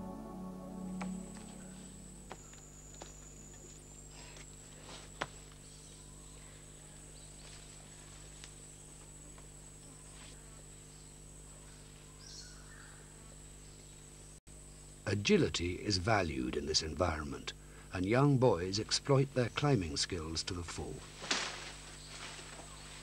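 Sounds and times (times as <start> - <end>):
low background hum: 0.0 - 23.0
insect high buzz: 0.6 - 15.1.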